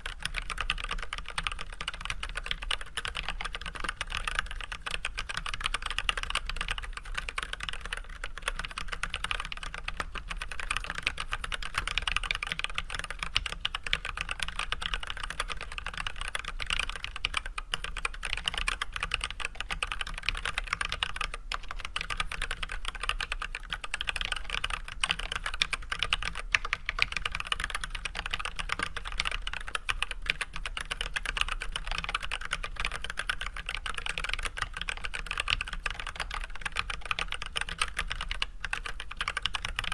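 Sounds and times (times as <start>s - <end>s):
mechanical keyboard typing: 0.0s - 39.9s.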